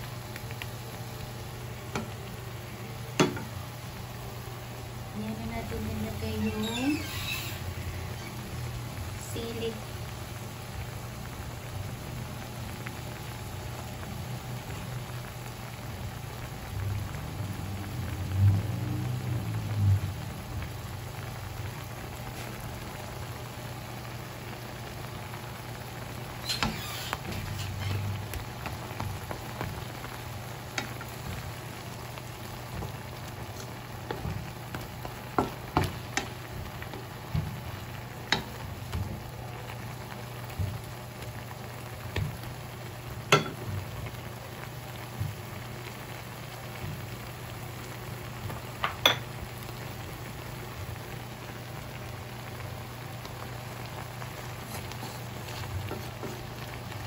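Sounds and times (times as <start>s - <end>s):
shrimp sizzling in a pan: 0.0s - 57.0s
wooden spatula clicking on pan: 38.3s - 39.0s.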